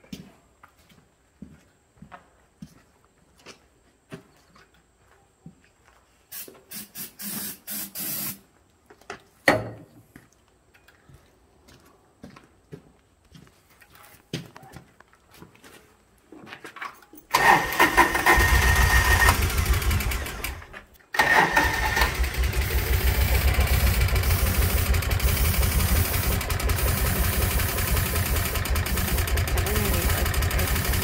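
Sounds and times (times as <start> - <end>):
engine running: 17.3 - 31.0
engine starter cranking: 17.3 - 31.0.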